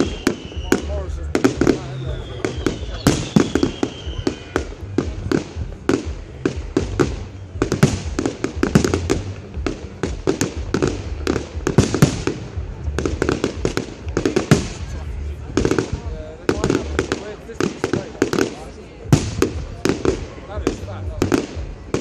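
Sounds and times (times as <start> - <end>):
fireworks bangs and crackles: 0.0 - 22.0.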